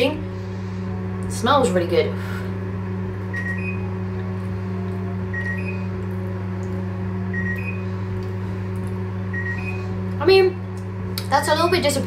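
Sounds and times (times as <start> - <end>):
microwave oven humming: 0.0 - 12.0
two-note rising beep: 5.2 - 5.9.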